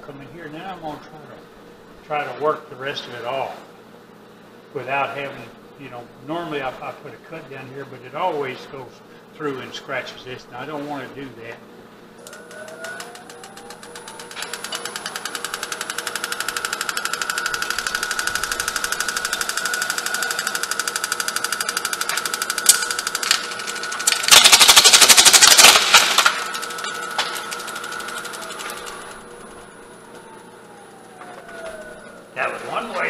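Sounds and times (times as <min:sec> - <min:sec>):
lathe motor whine: 0:12.0 - 0:33.0
rhythmic tool chatter: 0:12.2 - 0:33.0.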